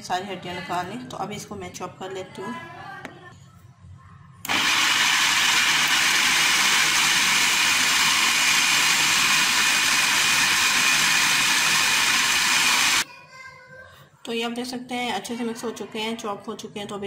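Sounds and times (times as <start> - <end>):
food processor running: 4.4 - 13.0.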